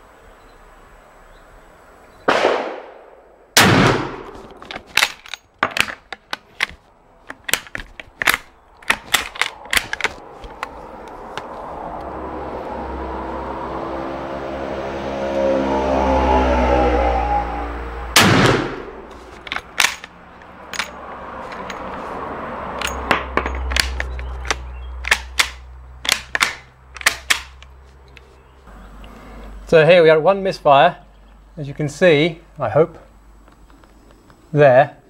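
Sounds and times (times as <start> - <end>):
rifle gunshots: 2.3 - 4.4, 18.2 - 19.0
low engine drone: 9.6 - 20.4
rifle bolt clicking: 23.7 - 27.7.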